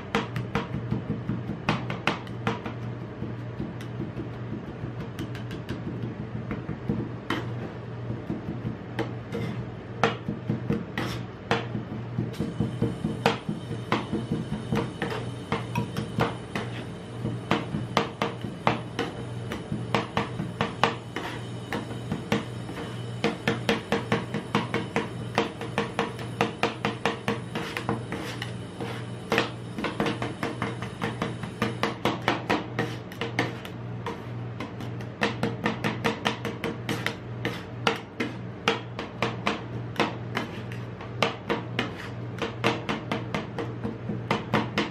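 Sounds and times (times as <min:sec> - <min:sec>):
steady low hum: 0:00.0 - 0:44.9
spatulas scraping: 0:09.3 - 0:09.7, 0:11.0 - 0:11.3, 0:21.2 - 0:21.4, 0:27.5 - 0:29.6, 0:32.8 - 0:34.4, 0:40.3 - 0:40.9.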